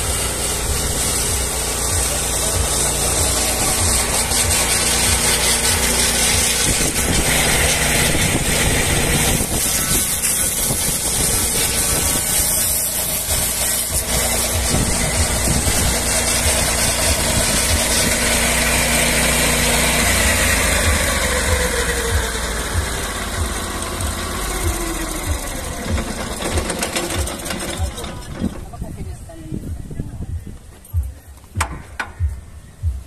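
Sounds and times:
circular saw blade cutting log: 0.0s - 28.8s
petrol engine running: 0.0s - 29.2s.

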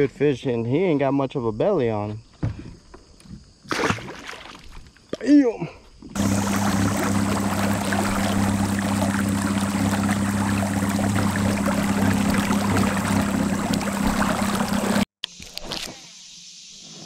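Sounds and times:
low steady hum: 6.2s - 15.0s.

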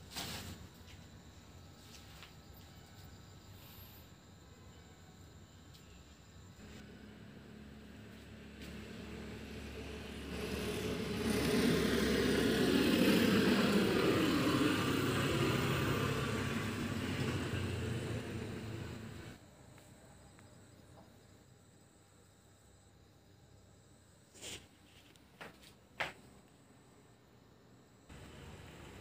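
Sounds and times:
motor vehicle passing by: 6.6s - 19.4s.

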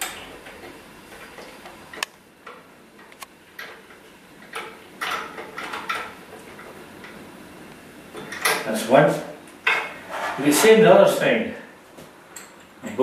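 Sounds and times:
scraping and rattling: 9.7s - 10.9s.

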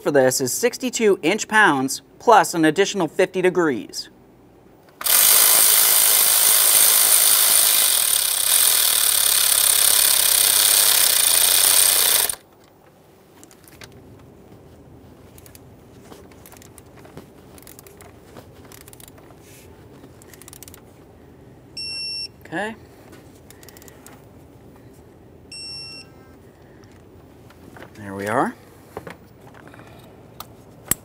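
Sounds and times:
power tool spinning bolt: 4.9s - 12.5s, 20.2s - 20.8s
faint hand tightening clicks: 20.2s - 20.8s.

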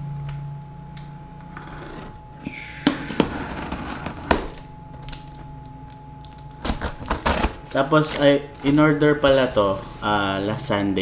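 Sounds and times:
box cutter slicing tape: 6.6s - 8.3s.

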